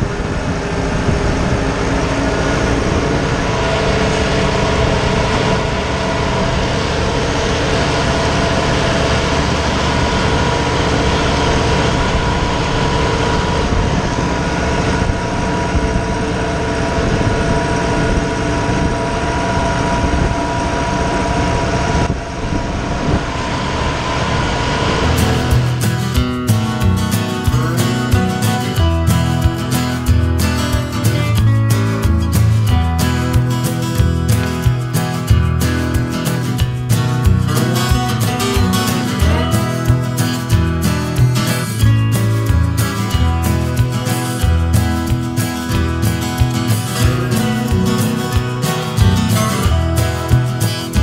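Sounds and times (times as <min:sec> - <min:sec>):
tractor diesel engine under load: 0:00.0 - 0:51.0.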